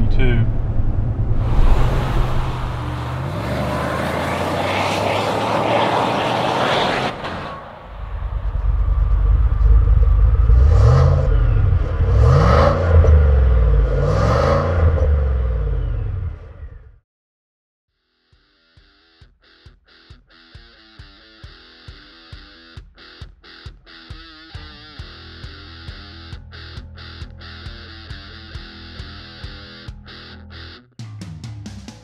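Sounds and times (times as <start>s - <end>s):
engine idling and revving: 0.0s - 16.9s
tyre and wind rush: 0.5s - 8.0s
engine drone in car cabin: 7.8s - 16.8s.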